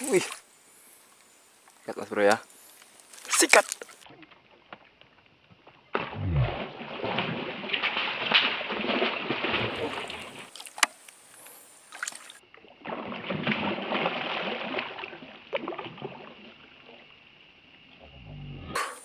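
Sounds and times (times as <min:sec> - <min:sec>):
fish splashing in water: 0:05.9 - 0:10.9, 0:11.9 - 0:17.0.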